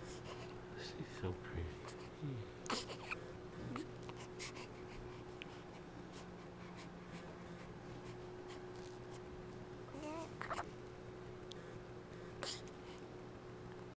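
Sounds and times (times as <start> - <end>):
steady low hum: 0.0 - 13.9
baby cooing: 2.7 - 4.7, 9.9 - 10.7.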